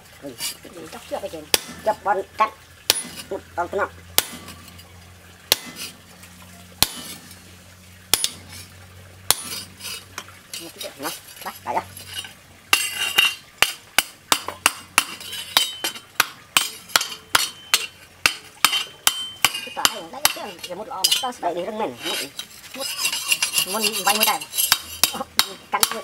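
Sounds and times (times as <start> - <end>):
hammer striking steel on anvil: 6.8 - 7.1, 8.1 - 8.4, 12.7 - 20.4.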